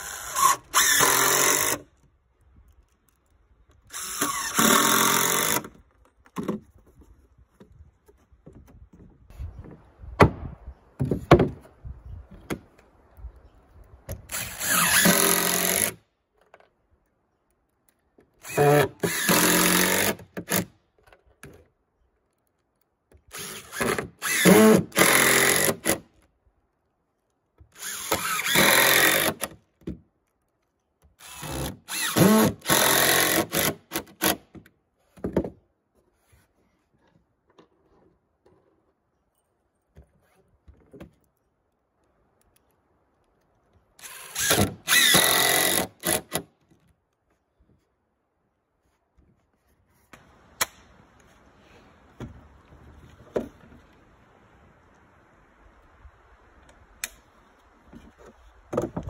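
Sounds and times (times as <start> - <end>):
impact driver driving screws: 0.0 - 1.8, 3.9 - 5.8, 14.2 - 16.0, 18.4 - 20.7, 23.3 - 26.0, 27.8 - 29.6, 31.2 - 34.5, 44.0 - 46.5.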